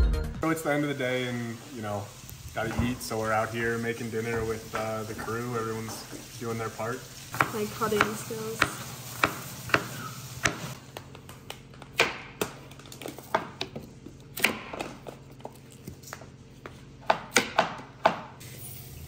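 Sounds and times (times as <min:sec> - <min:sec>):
knife chopping on cutting board: 0:07.3 - 0:12.6, 0:13.2 - 0:15.2, 0:16.6 - 0:18.4.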